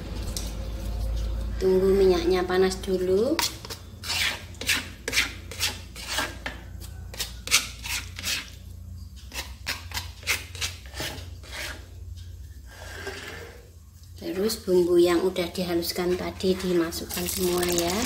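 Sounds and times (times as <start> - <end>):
low steady hum: 0.0 - 4.6
rasping scrapes: 3.5 - 8.6, 9.2 - 12.0, 12.6 - 13.7.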